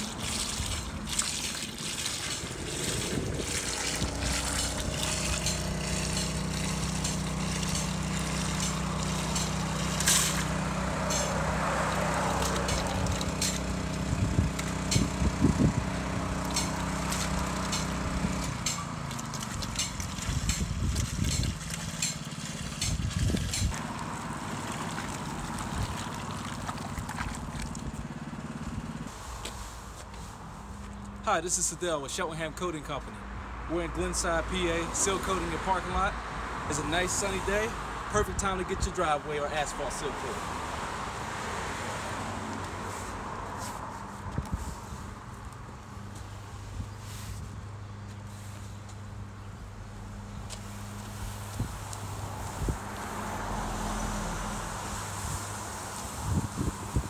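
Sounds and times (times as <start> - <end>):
liquid pumped into bucket: 0.0 - 28.0
small engine running: 0.0 - 29.1.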